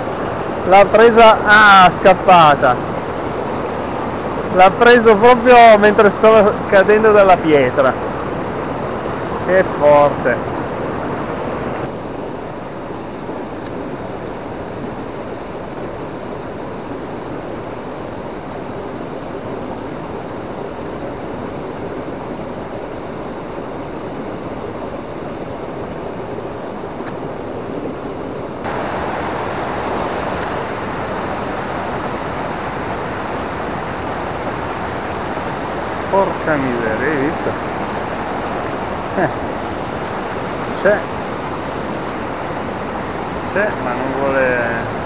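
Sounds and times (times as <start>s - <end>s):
rapids rushing: 0.0s - 45.0s
small waterfall: 0.0s - 45.0s
water rushing over rocks: 0.0s - 45.0s.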